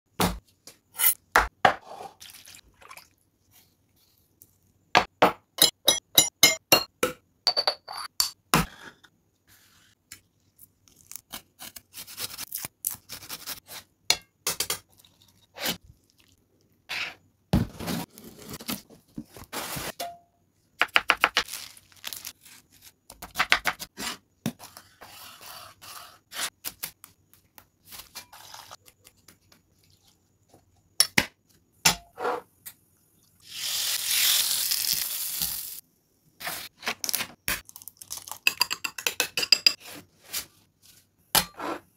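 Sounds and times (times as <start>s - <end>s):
knife cutting onion: 0.2s - 2.1s, 11.0s - 14.7s
plastic packaging crinkling: 21.4s - 22.4s.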